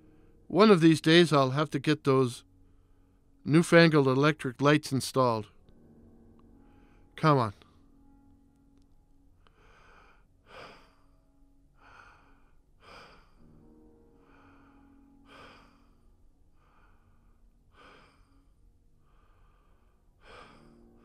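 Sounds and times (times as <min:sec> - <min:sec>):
faint background music: 0:00.0 - 0:21.0
man panting: 0:11.8 - 0:13.5, 0:19.2 - 0:20.8.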